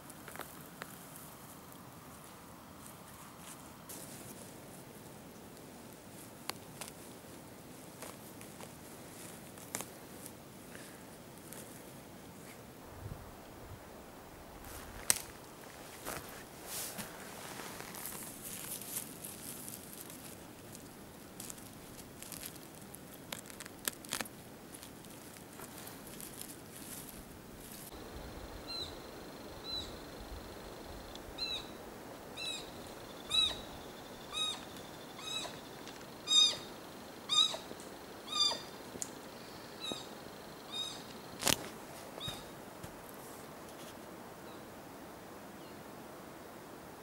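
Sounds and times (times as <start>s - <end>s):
footsteps cracking twigs: 14.6s - 28.1s, 41.1s - 43.9s
animal high-pitched calls: 32.4s - 33.7s, 34.3s - 36.7s, 37.3s - 38.8s, 40.7s - 41.1s.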